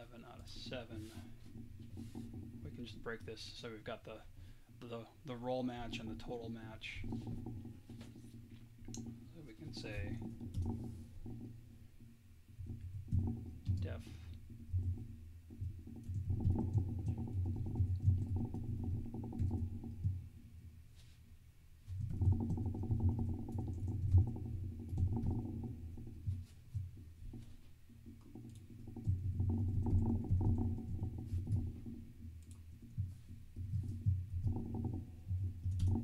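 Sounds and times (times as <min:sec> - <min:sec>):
typing on computer keyboard: 0:35.6 - 0:36.0.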